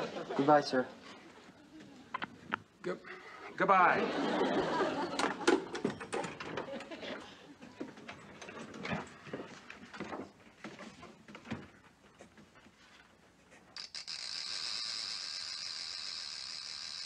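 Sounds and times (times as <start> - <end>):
light knocks and rustling papers: 7.8 - 13.7.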